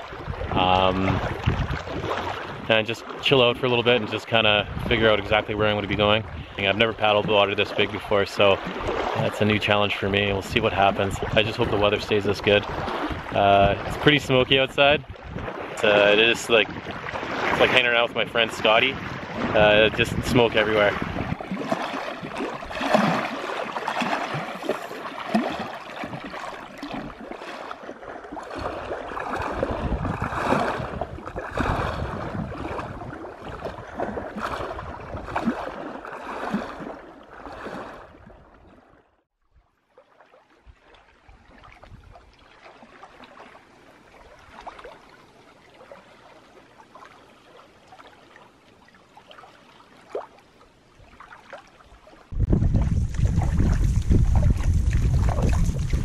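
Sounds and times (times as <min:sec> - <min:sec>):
waves lapping against rock: 0:00.0 - 0:39.0, 0:40.0 - 0:56.0.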